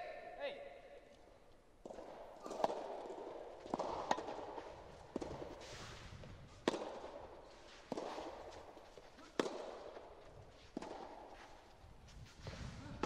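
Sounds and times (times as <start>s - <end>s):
rackets striking rubber ball: 1.8s - 5.6s, 6.6s - 11.3s
shoes scuffing on turf court: 1.9s - 13.0s.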